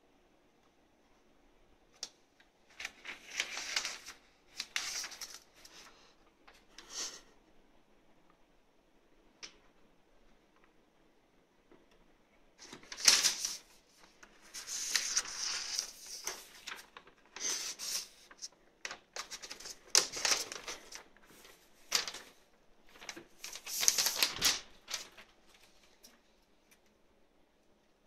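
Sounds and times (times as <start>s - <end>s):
paper rustling and crinkling: 2.6s - 7.2s, 12.6s - 26.2s.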